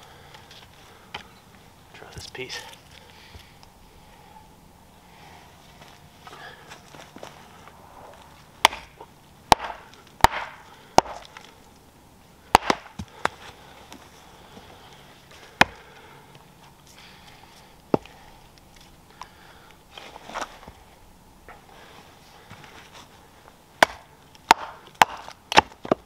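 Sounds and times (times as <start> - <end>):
axe chopping firewood: 8.6 - 11.5, 12.5 - 14.0, 15.5 - 15.9, 17.9 - 18.2, 23.8 - 26.0.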